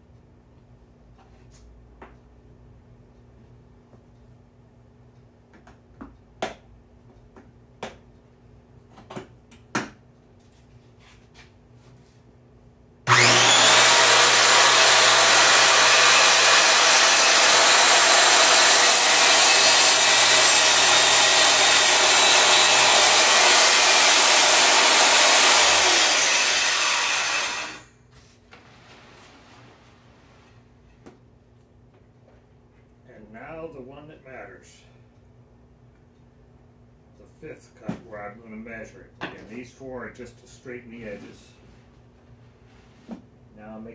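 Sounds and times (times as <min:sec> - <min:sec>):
table saw cutting wood: 0:13.1 - 0:27.9.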